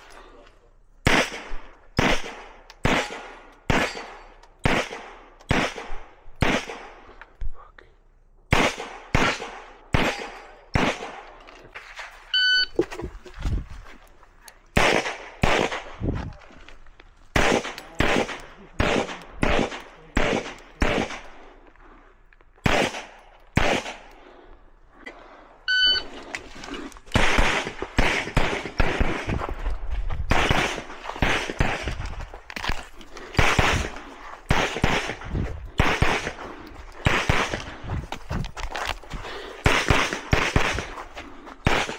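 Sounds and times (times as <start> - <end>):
pistol shots: 1.0 - 7.1, 8.5 - 11.4, 14.7 - 16.0, 17.3 - 21.5, 22.6 - 24.1, 27.1 - 29.4, 30.3 - 32.0, 33.3 - 37.7, 39.6 - 41.0
short electronic beeps: 12.3 - 12.8, 25.7 - 26.1.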